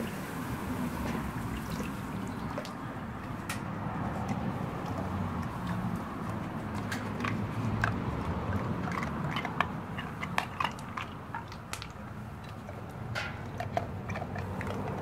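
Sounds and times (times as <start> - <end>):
dog mouth smacks and clicks: 3.6 - 15.0.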